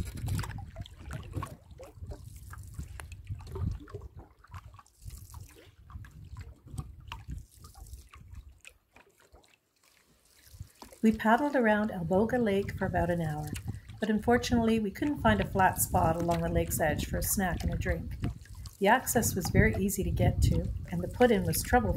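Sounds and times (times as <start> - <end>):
canoe paddles dipping into water: 0.0 - 21.9
water dripping from paddles: 0.0 - 21.9.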